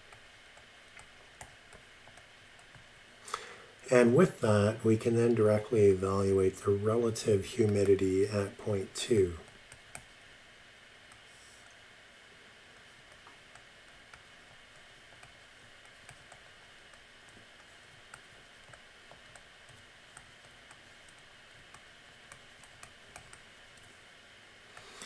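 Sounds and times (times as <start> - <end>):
steady low hiss: 0.0 - 25.0
stylus tapping tablet screen: 13.0 - 23.9.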